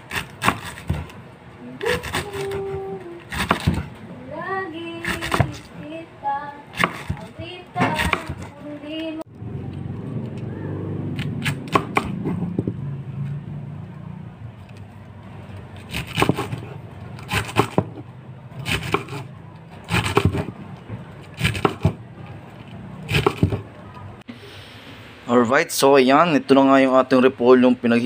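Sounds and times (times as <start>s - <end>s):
knife cutting crunchy cabbage: 0.0s - 1.2s, 1.8s - 3.9s, 5.0s - 5.7s, 6.7s - 8.5s, 15.5s - 18.0s, 18.6s - 20.6s, 21.2s - 22.0s, 23.0s - 23.6s.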